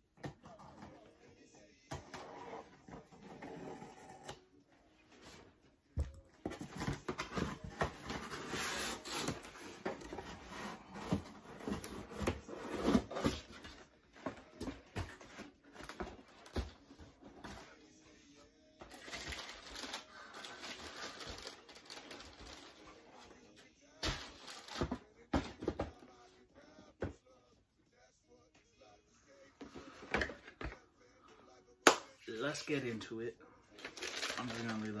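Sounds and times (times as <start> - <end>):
cardboard rustling and scraping: 6.4 - 17.7.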